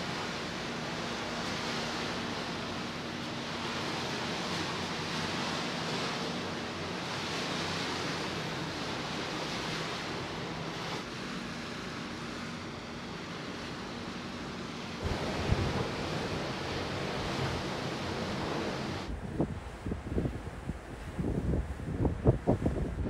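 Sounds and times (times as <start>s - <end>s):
rushing water: 0.0s - 23.0s
wind buffeting microphone: 15.0s - 23.0s.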